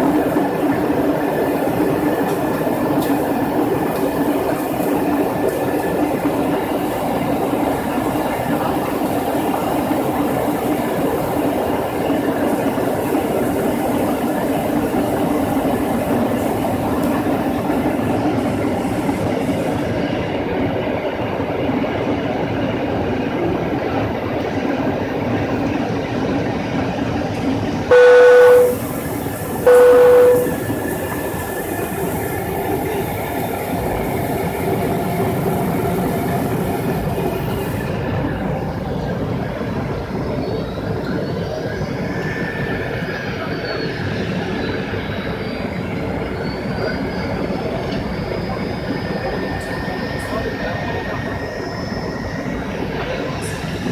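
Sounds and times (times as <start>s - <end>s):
airliner cabin noise: 27.4s - 33.1s
loud steady tones: 27.9s - 29.1s, 29.7s - 30.7s.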